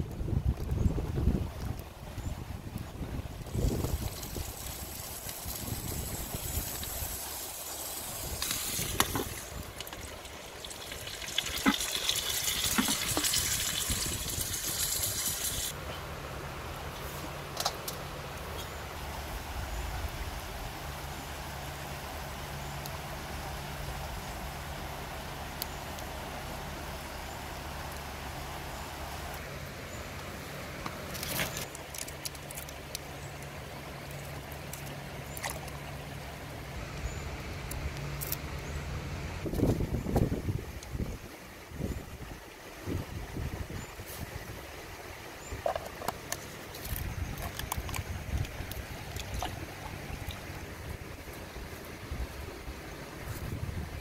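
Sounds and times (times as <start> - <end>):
stream water running: 0.0 - 54.0
oil pouring from a plastic bottle: 8.4 - 15.7.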